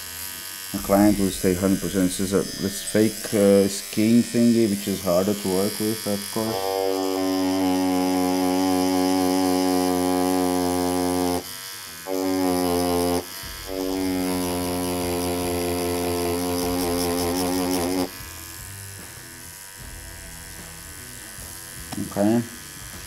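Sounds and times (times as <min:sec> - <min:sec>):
tattoo machine buzzing: 0:00.0 - 0:23.0.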